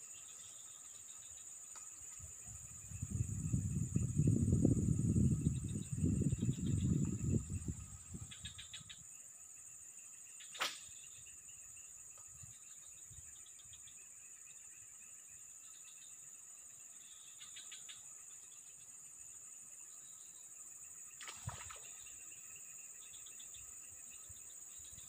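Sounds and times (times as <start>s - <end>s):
high-pitched insect drone: 0.0s - 25.0s
rapid insect chirping: 0.0s - 25.0s.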